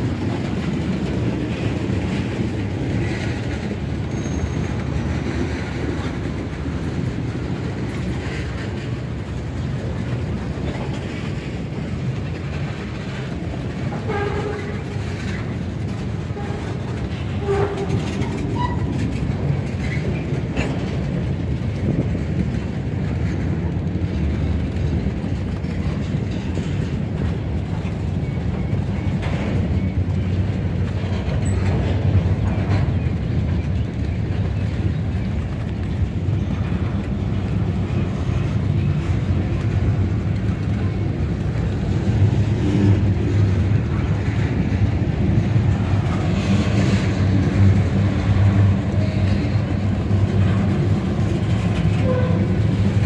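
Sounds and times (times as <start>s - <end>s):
clickety-clack over rail joints: 0.0s - 53.0s
train wheels rumbling on rail: 0.0s - 53.0s
high wheel squeals: 4.0s - 4.8s.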